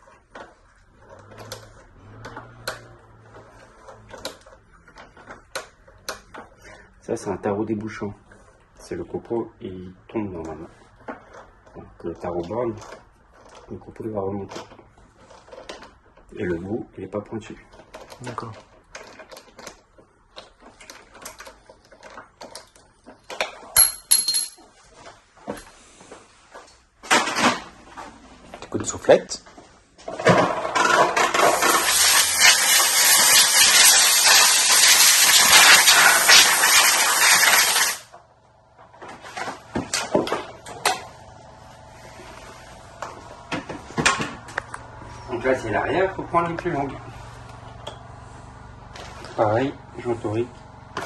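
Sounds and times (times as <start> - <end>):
ringing metal clinks: 23.8 - 24.6.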